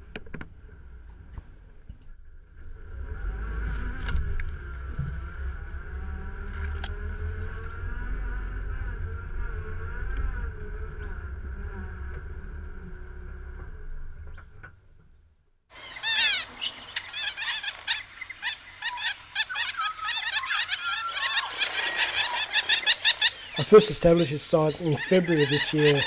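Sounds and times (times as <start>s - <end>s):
engine and road rumble: 0.0s - 20.1s
finches chirping: 15.7s - 26.0s.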